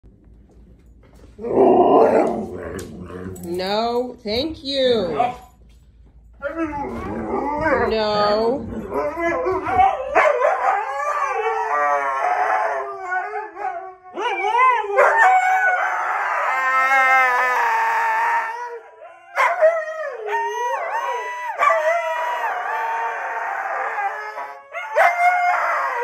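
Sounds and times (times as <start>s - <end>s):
huskies howling: 6.4s - 26.0s.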